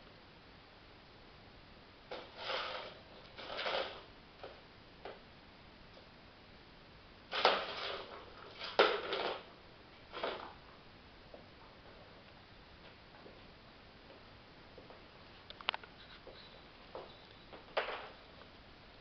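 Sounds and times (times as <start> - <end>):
plastic toy scraping and rattling: 2.1 - 4.1, 7.3 - 9.4.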